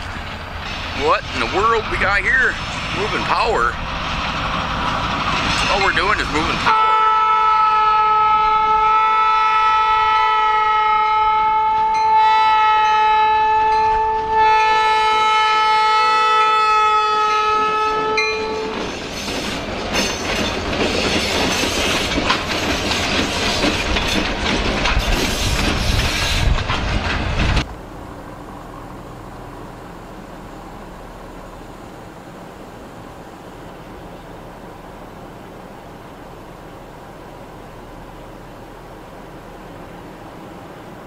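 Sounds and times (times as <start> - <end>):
diesel engine rumble: 0.0 - 6.7, 19.6 - 41.0
train wheels clattering on rails: 0.0 - 6.7, 18.4 - 27.8
locomotive air horn chord: 6.6 - 18.8.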